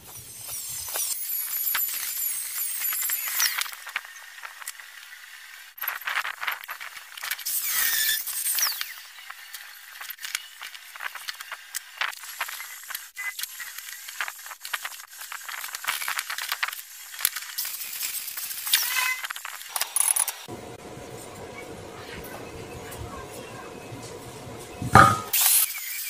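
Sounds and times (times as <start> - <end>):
short high squeak: 7.5 - 9.1, 18.7 - 19.3.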